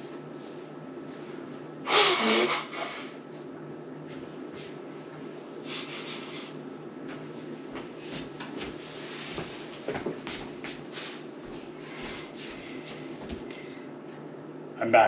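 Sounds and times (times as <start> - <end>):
steady low hum: 0.0 - 15.0
person blowing nose: 1.8 - 3.2, 5.7 - 6.5.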